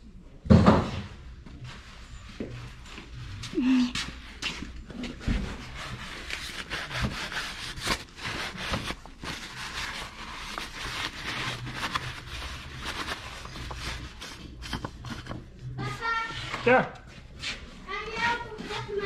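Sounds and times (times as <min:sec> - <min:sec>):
paper towel rubbing oil filter: 0:05.2 - 0:16.5.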